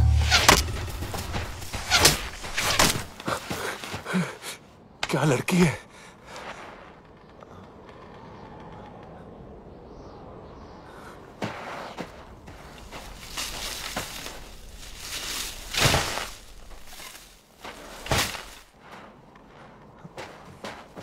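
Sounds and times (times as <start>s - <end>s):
sharp swishes and knocks: 0.0s - 3.2s
branches and snow rustling: 0.0s - 8.6s, 10.9s - 21.0s.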